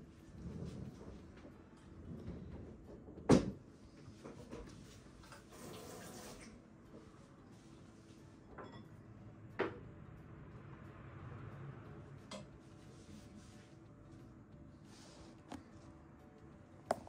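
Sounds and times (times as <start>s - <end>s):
tap water running: 5.2s - 6.6s.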